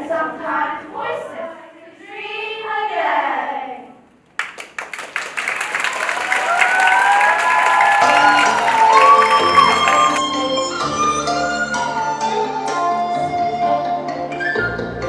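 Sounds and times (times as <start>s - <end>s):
girls singing: 0.0s - 4.0s
audience applause: 4.4s - 10.4s
music with sustained tones: 8.0s - 15.0s.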